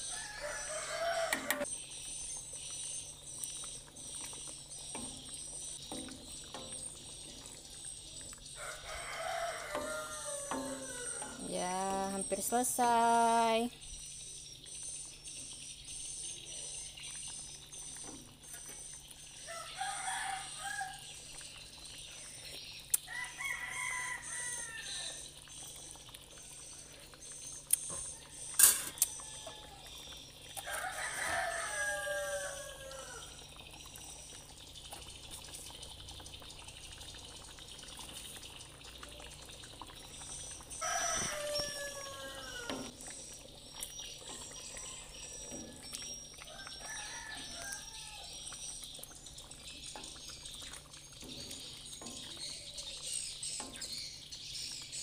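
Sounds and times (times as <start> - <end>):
rooster crowing: 0.0 - 1.7, 8.6 - 11.4, 19.4 - 21.1, 23.1 - 25.2, 28.2 - 29.9, 30.6 - 33.4, 40.8 - 42.9, 46.5 - 48.4
food bubbling in a wok: 0.0 - 55.0.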